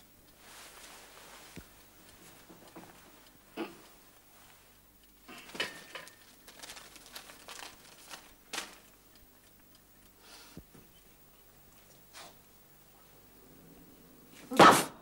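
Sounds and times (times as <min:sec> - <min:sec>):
paper rustling and crinkling: 0:05.3 - 0:08.9.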